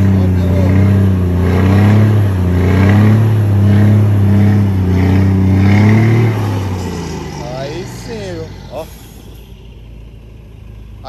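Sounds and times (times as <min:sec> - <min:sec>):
diesel truck engine revving: 0:00.0 - 0:11.0
tyres spinning on pavement: 0:03.4 - 0:11.0.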